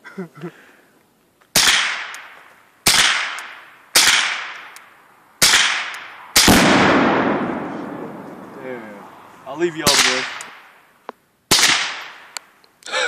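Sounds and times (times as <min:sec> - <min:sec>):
rifle shots echoing: 0:01.6 - 0:04.8, 0:05.4 - 0:08.6, 0:09.8 - 0:10.8, 0:11.5 - 0:12.4
target detonating boom: 0:06.4 - 0:08.6.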